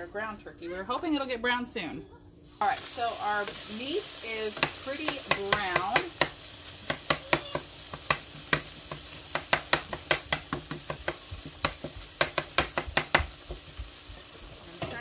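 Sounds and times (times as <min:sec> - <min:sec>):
meat sizzling: 0:02.6 - 0:15.0
utensil clicking and scraping skillet: 0:04.5 - 0:13.8.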